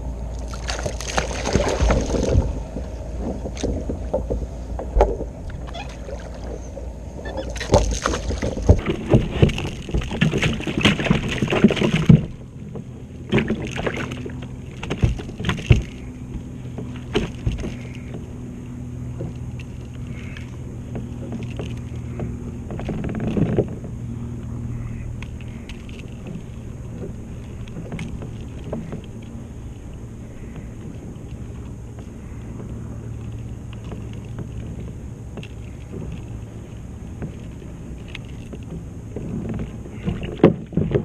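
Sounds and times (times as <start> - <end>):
fish splashing: 0.4 - 4.1, 5.4 - 12.4
fish flopping on kayak deck: 0.4 - 41.0.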